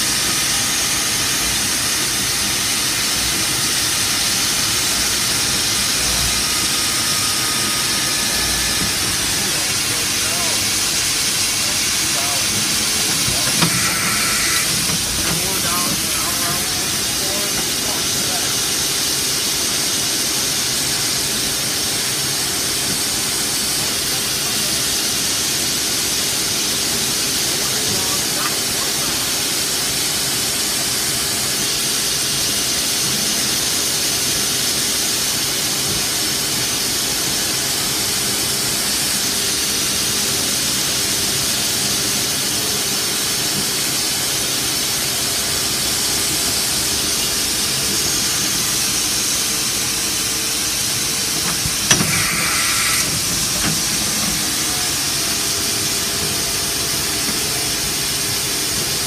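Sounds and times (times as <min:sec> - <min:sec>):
milling machine cutting hiss: 0:00.0 - 0:59.0.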